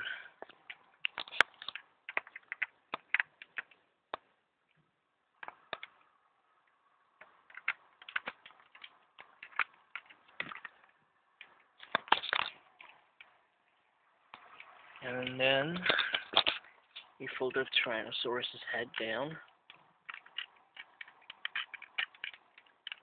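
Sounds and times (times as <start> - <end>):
plastic toy parts clicking: 0.4 - 4.2, 5.4 - 6.0, 7.2 - 13.4, 14.3 - 17.1, 18.9 - 23.0.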